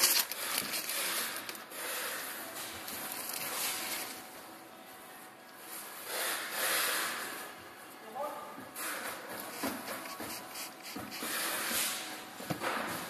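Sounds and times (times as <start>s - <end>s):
soft rustling and handling noise: 8.8s - 12.8s.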